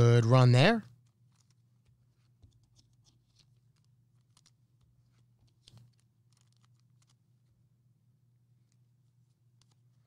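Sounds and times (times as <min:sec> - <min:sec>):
low steady hum: 0:00.0 - 0:10.0
trading cards flipped by hand: 0:01.0 - 0:07.2, 0:08.7 - 0:10.0.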